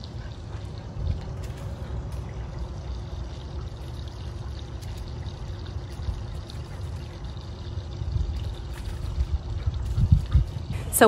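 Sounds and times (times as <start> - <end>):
wind buffeting microphone: 0.0 - 3.4, 5.6 - 11.0.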